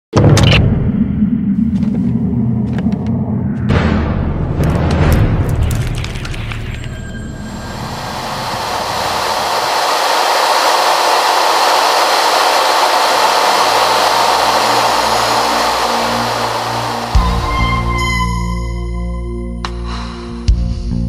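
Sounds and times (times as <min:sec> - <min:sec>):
radial engine drone: 0:06.7 - 0:19.2
rush of air: 0:07.4 - 0:17.9.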